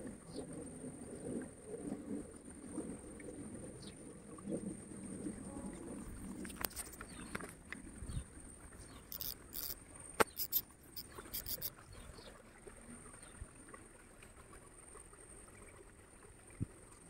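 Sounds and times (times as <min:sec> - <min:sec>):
stream rippling: 0:00.0 - 0:17.0
reel rasping clicks: 0:06.4 - 0:07.6, 0:08.9 - 0:11.8.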